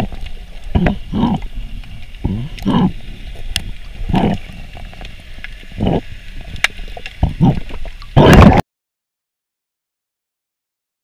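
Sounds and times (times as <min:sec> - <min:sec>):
muffled underwater rushing bursts: 0:00.0 - 0:04.9.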